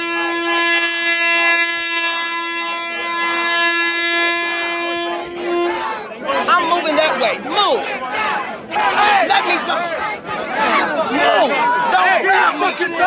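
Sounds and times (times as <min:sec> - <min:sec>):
air horn long blast: 0:00.0 - 0:07.2
faint crowd voices: 0:00.0 - 0:13.0.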